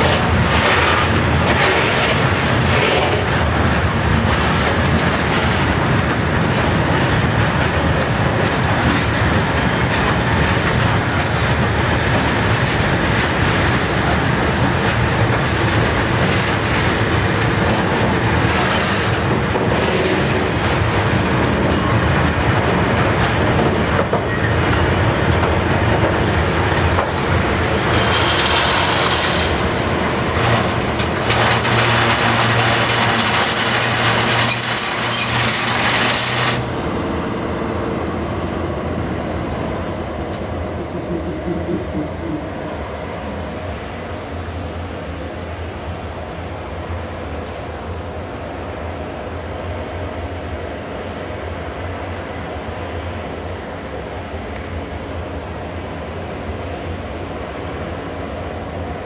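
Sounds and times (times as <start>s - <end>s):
wheels clacking over rail joints: 0.0s - 38.2s
freight train rumbling past: 0.0s - 59.0s.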